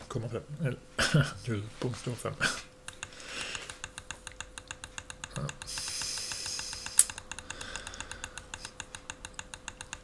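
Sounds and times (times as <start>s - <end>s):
faint steady hum: 0.0s - 10.0s
rapid computer clicks: 2.8s - 10.0s.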